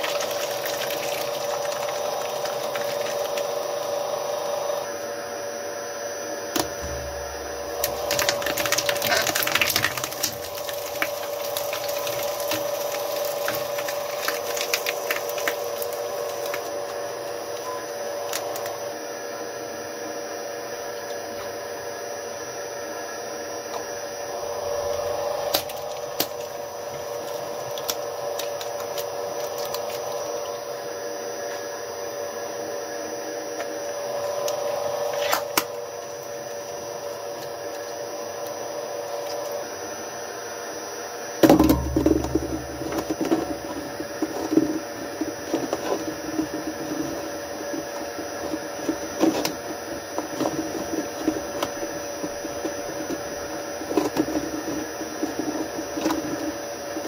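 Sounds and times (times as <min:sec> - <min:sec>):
shredder motor whine: 0:00.0 - 0:57.0
blades crunching and rattling: 0:07.8 - 0:16.8.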